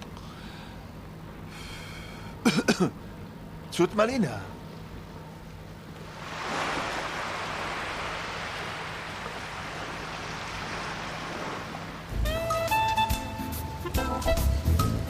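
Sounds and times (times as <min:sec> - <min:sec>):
waves breaking on pebble beach: 0:06.0 - 0:12.1.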